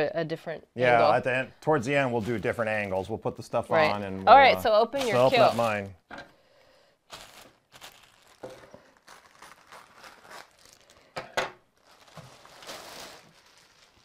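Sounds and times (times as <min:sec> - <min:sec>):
plastic bag crinkling: 0:03.9 - 0:05.9, 0:07.1 - 0:14.0.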